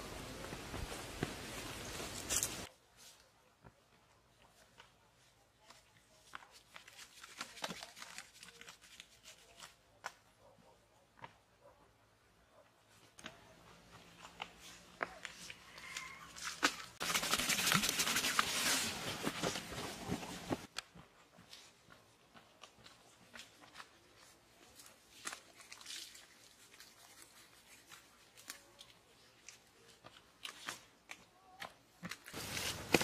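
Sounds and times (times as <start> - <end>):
footsteps on damp earth: 0.0 - 2.7, 18.5 - 25.4.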